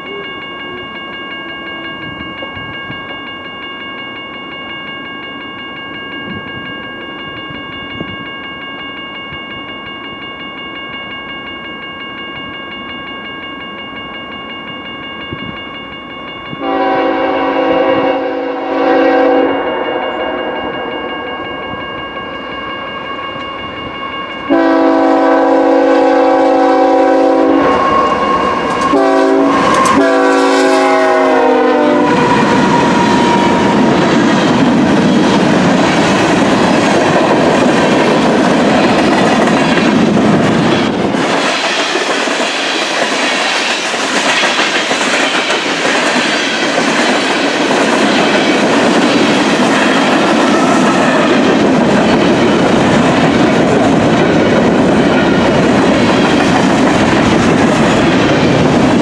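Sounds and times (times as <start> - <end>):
locomotive air horn blasts: 16.6 - 20.3, 24.5 - 32.4.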